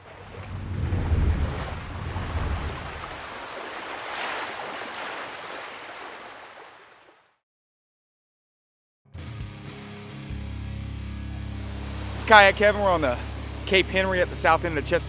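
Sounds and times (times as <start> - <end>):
wind buffeting microphone: 0.0 - 4.2
ocean surf washing: 0.0 - 7.1, 11.6 - 15.0.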